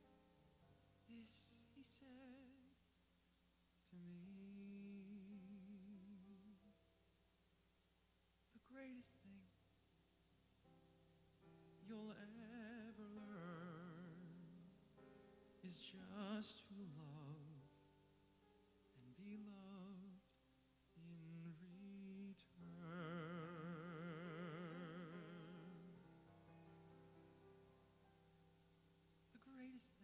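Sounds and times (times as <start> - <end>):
grand piano accompaniment: 0.0 - 2.6, 10.5 - 30.0
man singing a slow ballad: 1.1 - 2.8, 3.9 - 6.6, 8.6 - 9.5, 11.8 - 14.8, 15.6 - 17.8, 19.0 - 20.3, 20.9 - 26.0, 29.4 - 30.0.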